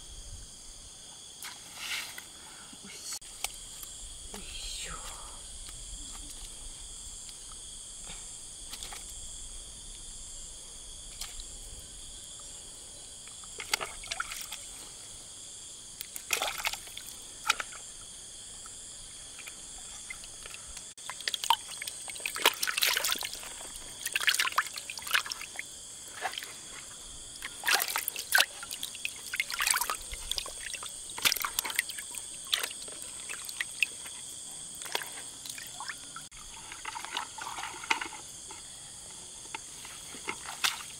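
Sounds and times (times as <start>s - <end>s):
water splashing and trickling: 13.2s - 15.0s, 16.0s - 38.6s, 40.2s - 40.9s.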